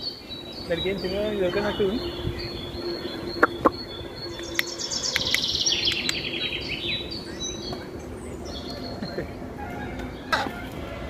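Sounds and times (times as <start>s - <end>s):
high bird chirps: 0.0s - 9.3s
sharp clicks: 4.5s - 6.2s.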